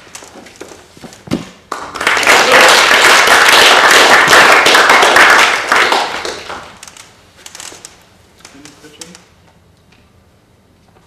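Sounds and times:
audience applauding: 0:01.7 - 0:06.8.

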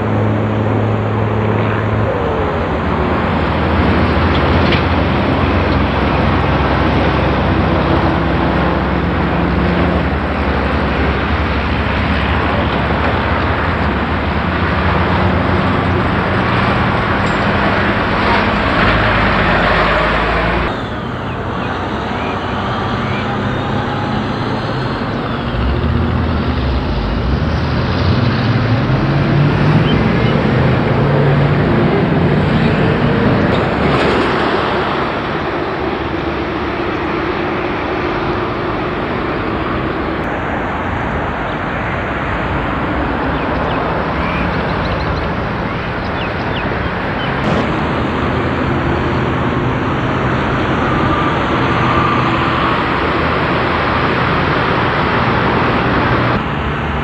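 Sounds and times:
cars passing at speed: 0:00.0 - 0:57.0.

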